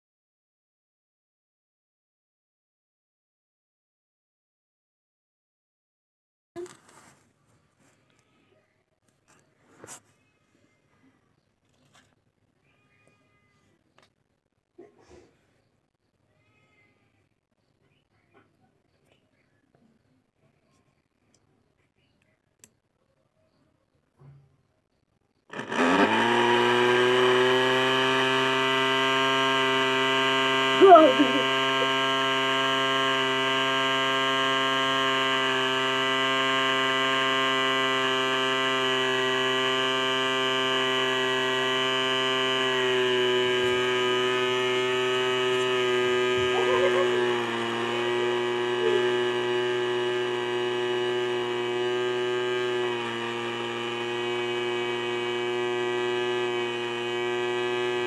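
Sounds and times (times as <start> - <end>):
flour mill motor hum: 25.3 - 58.0.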